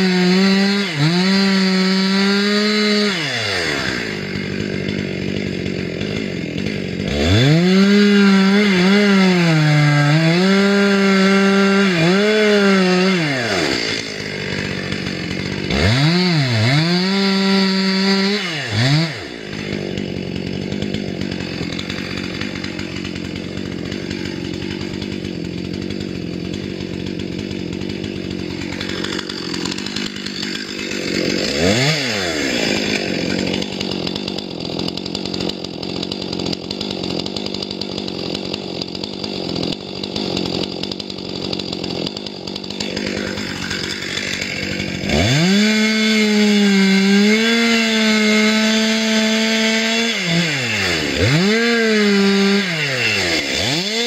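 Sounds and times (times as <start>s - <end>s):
chainsaw cutting wood: 0.0s - 54.0s.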